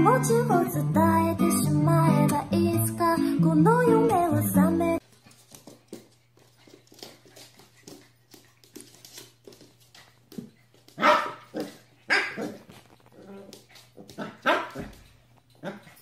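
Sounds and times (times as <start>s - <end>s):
paws and ball on wooden floor: 5.0s - 16.0s
puppy barking: 11.0s - 12.6s, 14.2s - 14.9s.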